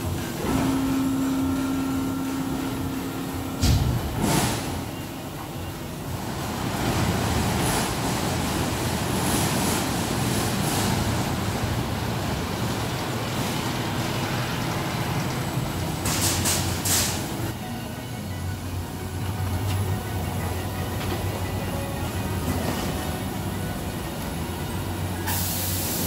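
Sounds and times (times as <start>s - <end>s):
low mechanical machine noise: 0.0s - 26.0s.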